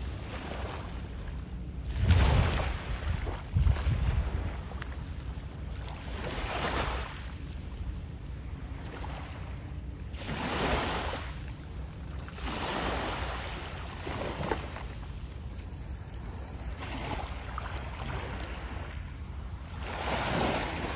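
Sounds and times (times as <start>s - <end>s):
wind rumble on microphone: 0.0s - 11.1s
small waves washing in: 0.0s - 20.9s.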